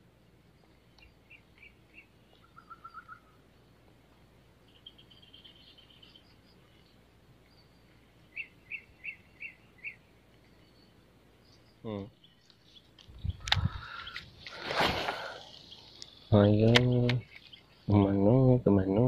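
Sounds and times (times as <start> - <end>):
birds calling: 0.6 - 19.0.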